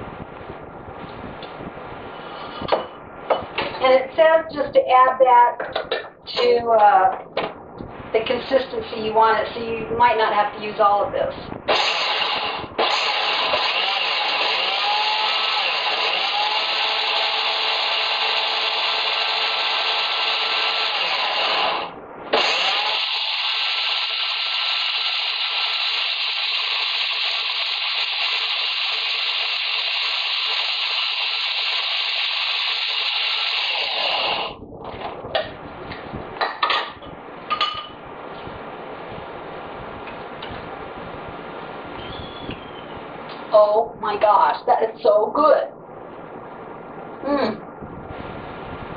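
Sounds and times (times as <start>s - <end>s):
food processor motor running: 11.7s - 34.6s.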